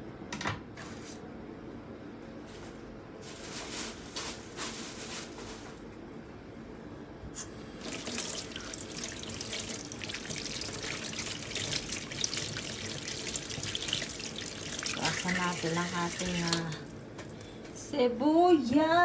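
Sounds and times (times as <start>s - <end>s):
tap water splashing into sink: 7.8s - 17.8s.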